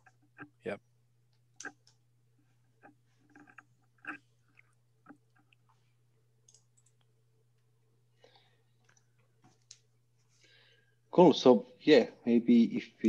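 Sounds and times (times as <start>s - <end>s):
low steady hum: 0.0s - 13.0s
faint clicks: 6.4s - 7.7s, 8.8s - 9.9s.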